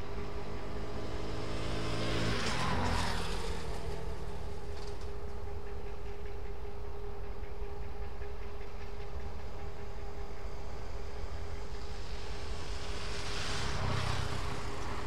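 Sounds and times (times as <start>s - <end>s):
vehicle passing by: 0.0s - 5.2s, 10.8s - 15.0s
low engine hum: 0.0s - 15.0s.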